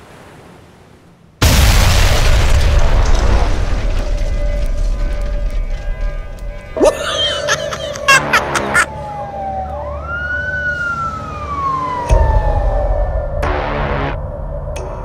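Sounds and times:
police siren wailing: 6.8s - 14.2s.

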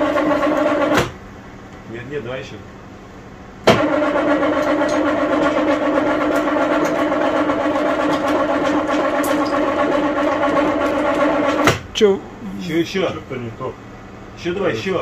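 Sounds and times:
electric hoist motor humming: 3.6s - 13.4s.

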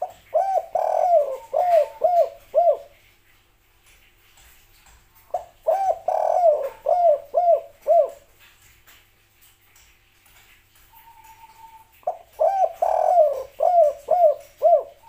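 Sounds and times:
dove cooing: 0.0s - 3.0s, 5.3s - 8.4s, 10.9s - 15.0s.

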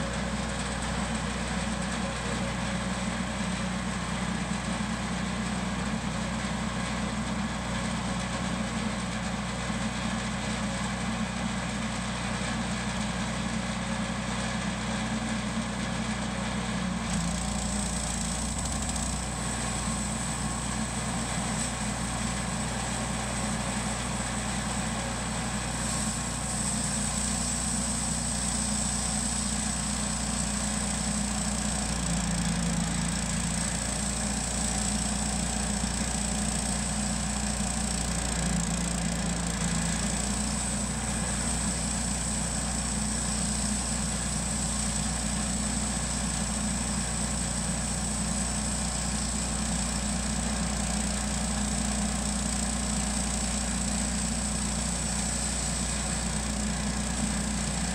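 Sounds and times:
bandsaw mill cutting log: 0.0s - 57.9s
high whine of saw blade: 17.1s - 57.9s.

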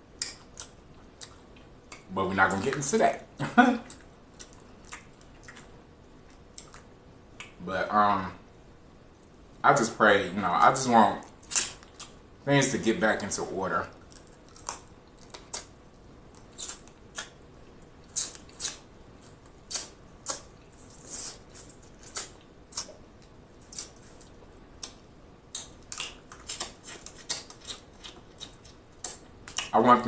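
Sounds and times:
lips smacking and sucking: 3.8s - 7.6s, 16.4s - 17.4s, 18.0s - 23.0s, 23.6s - 29.8s.

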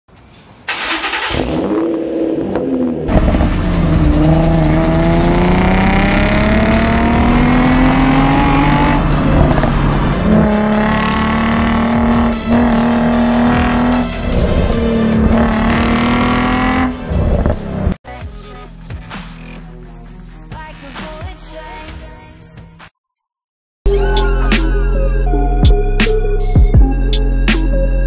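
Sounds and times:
car engine accelerating hard: 0.7s - 18.0s.

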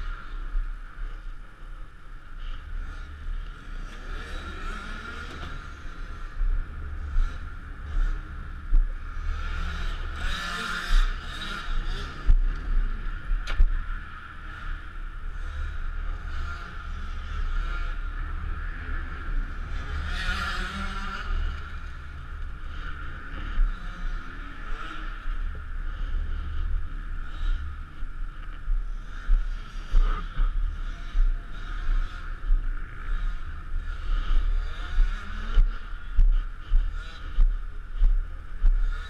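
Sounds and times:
motorcycle engines revving: 0.0s - 39.0s
heavy low rumble: 21.2s - 38.9s.

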